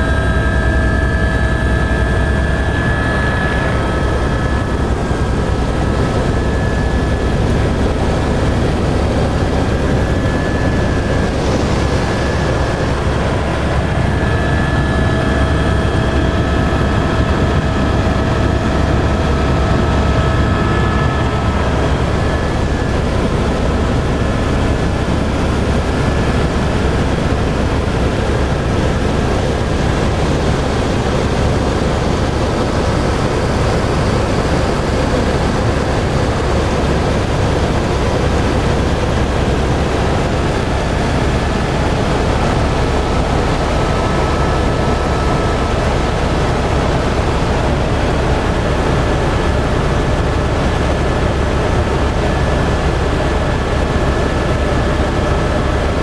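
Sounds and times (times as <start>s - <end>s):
faint high whining tones: 0.0s - 26.6s.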